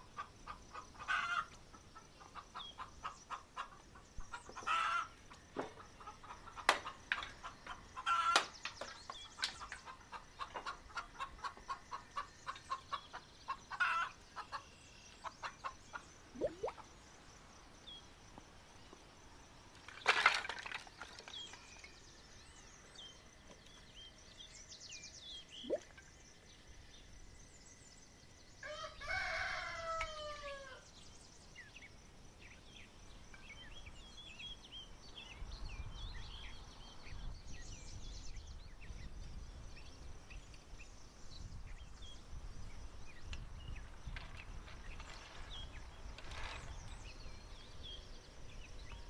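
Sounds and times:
small birds chirping: 0.0s - 28.8s, 29.8s - 49.0s
rooster crowing: 28.6s - 30.8s.

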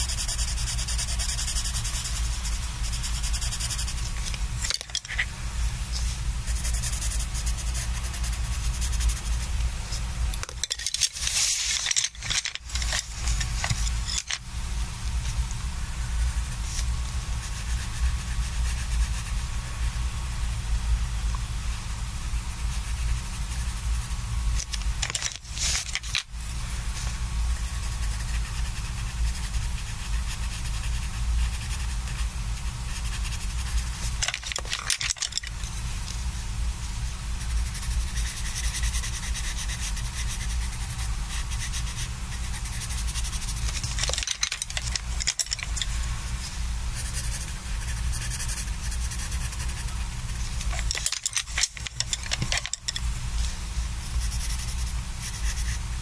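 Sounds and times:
pencil scratching on paper: 0.0s - 5.3s, 6.0s - 10.1s, 16.0s - 19.4s, 25.1s - 26.2s, 27.5s - 35.5s, 37.4s - 46.0s, 47.0s - 52.6s, 54.0s - 56.0s.

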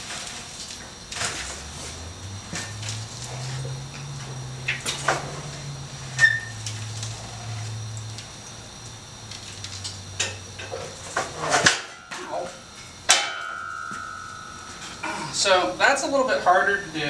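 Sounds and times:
low steady hum: 0.0s - 17.0s
sheet metal knocks and clanks: 13.1s - 15.2s.

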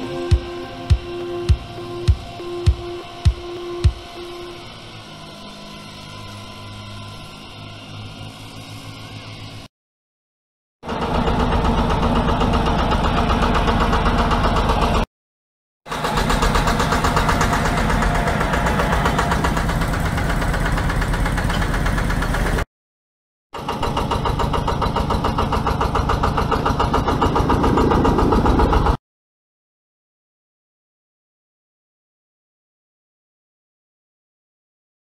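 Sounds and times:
diesel engine running: 0.0s - 6.4s, 10.8s - 15.1s, 15.9s - 22.6s, 23.6s - 29.0s.

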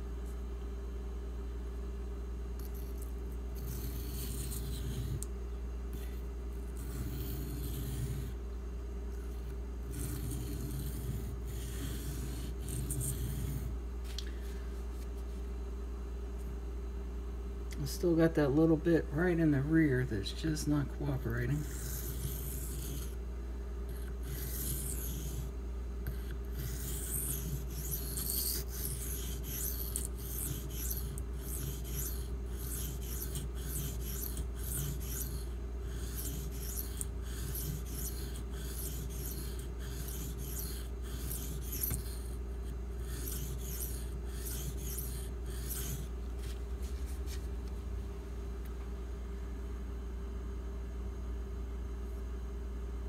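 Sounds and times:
steady low hum: 0.0s - 53.0s
knife scraping on whetstone: 3.6s - 5.2s, 6.8s - 8.4s, 9.9s - 13.7s, 21.4s - 23.2s, 24.0s - 25.5s, 26.1s - 47.4s.

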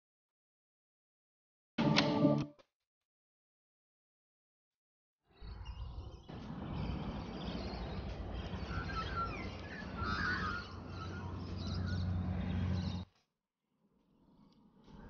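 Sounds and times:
birds chirping: 5.3s - 13.1s.

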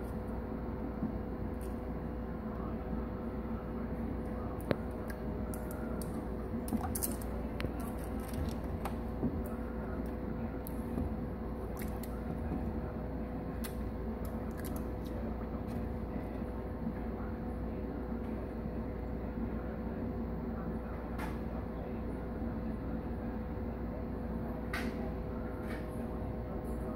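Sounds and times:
aquarium filter bubbling water: 4.4s - 16.2s
turtle splashing and scrabbling: 11.6s - 12.8s.

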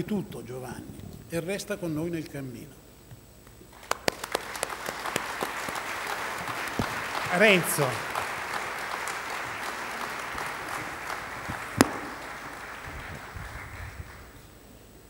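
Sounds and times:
audience applauding: 3.7s - 14.4s.

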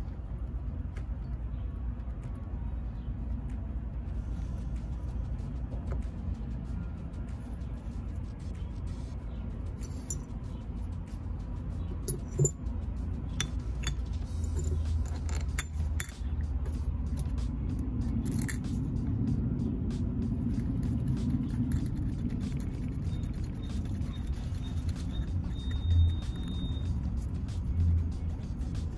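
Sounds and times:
steady low rumble: 0.0s - 28.9s
background music: 2.7s - 28.9s
small metal parts clinking: 9.8s - 10.4s, 12.1s - 12.6s, 13.4s - 16.3s, 18.2s - 18.8s.

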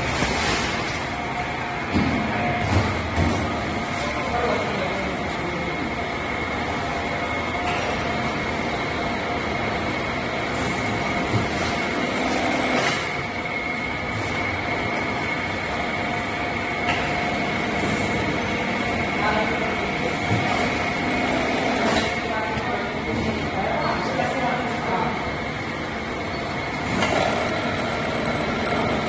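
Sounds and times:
bagging machine running: 0.0s - 29.0s
belt conveyor running: 0.0s - 29.0s
constant high whine: 24.1s - 29.0s.

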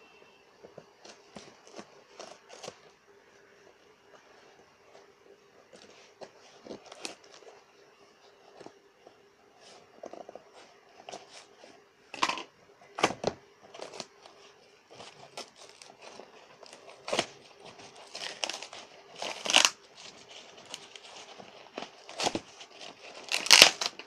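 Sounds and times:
plastic wrapping crinkling: 13.7s - 24.0s
cardboard tearing: 15.0s - 24.0s.

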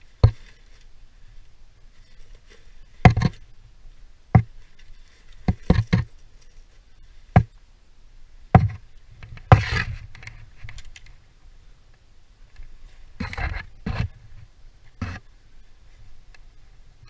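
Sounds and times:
rustling scrape: 0.0s - 3.5s, 4.5s - 7.3s, 9.2s - 10.8s, 12.7s - 15.3s
climbing gear knocking and clacking: 5.5s - 6.1s.

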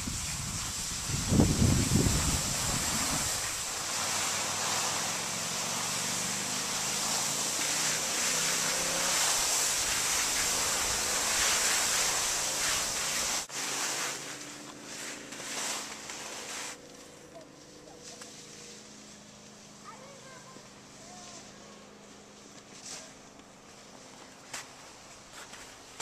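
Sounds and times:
wind on microphone: 0.0s - 3.9s
skis hissing over snow: 0.0s - 26.0s.

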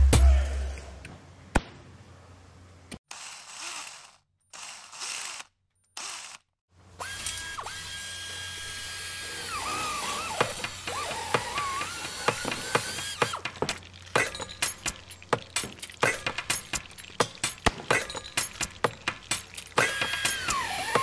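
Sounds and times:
high electric servo whine: 7.0s - 13.2s.

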